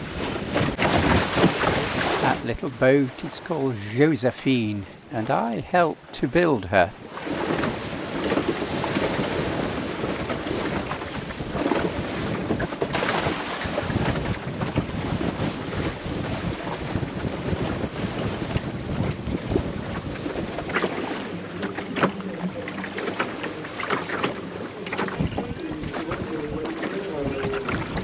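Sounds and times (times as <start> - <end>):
wind buffeting microphone: 0.0 - 2.4, 7.0 - 21.3, 25.0 - 28.0
water splashing along hull: 0.0 - 28.0.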